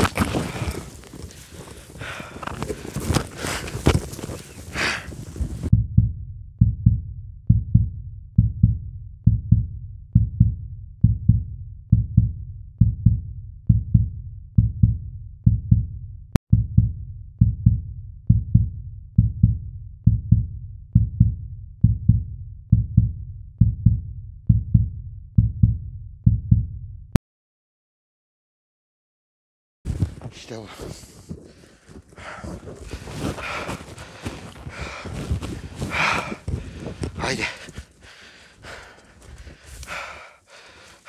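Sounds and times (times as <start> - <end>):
muffled low thudding pulse: 5.4 - 27.2, 31.2 - 39.6.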